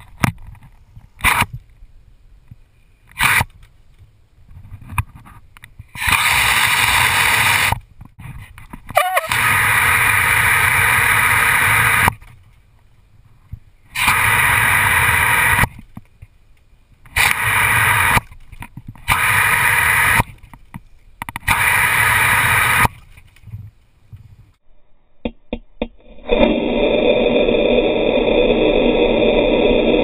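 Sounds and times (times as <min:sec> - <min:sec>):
hose nozzle spray hissing: 0:06.0 - 0:07.8, 0:09.0 - 0:12.1, 0:14.0 - 0:15.7, 0:17.2 - 0:18.2, 0:19.1 - 0:20.3, 0:21.5 - 0:23.0
sharp clicks: 0:14.0 - 0:23.5.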